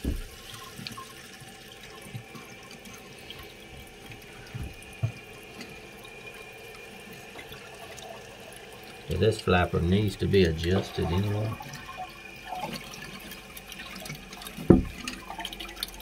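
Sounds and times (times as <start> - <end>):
toilet tank refilling hiss: 0.0 - 16.0
faint high steady tone: 9.3 - 12.7.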